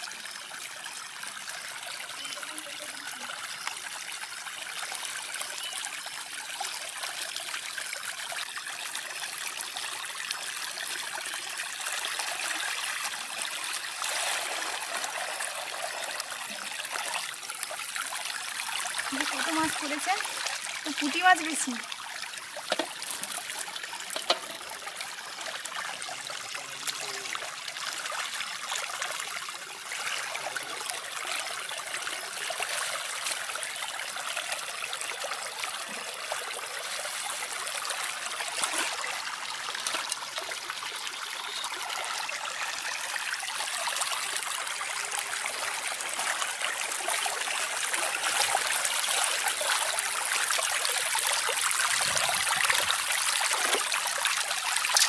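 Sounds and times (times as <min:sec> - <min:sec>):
water running: 0:12.0 - 0:42.9.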